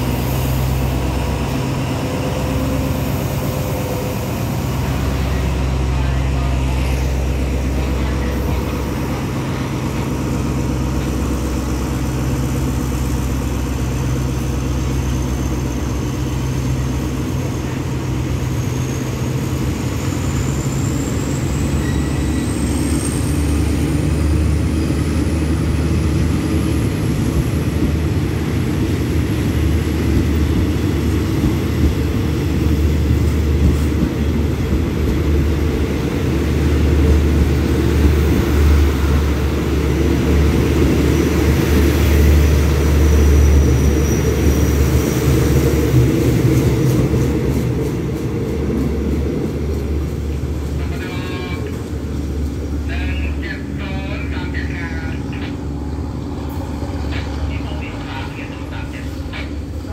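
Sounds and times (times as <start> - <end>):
locomotive diesel engine drone: 0.0 - 59.9.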